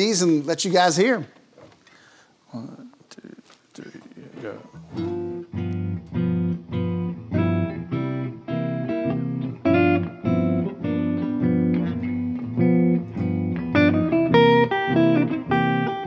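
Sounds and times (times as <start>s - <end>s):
electric guitars strumming chords: 4.4s - 16.0s.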